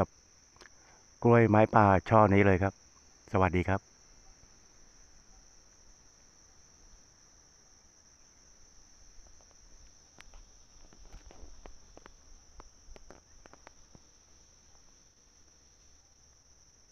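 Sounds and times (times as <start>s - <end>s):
sharp clicks and crackles: 9.2s - 14.1s.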